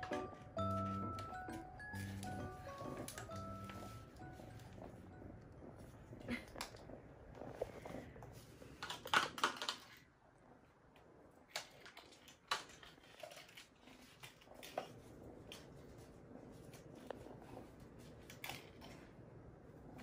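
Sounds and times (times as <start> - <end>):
kitten playing with plastic toy: 8.6 - 10.0.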